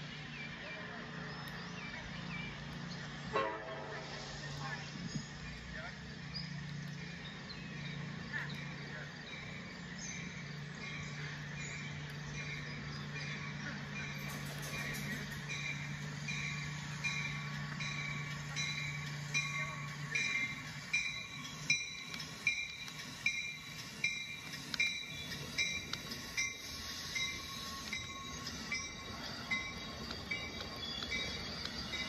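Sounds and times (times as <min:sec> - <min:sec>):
wheels clicking on track joints: 0:05.0 - 0:32.0
toy train motor whine: 0:14.2 - 0:32.0.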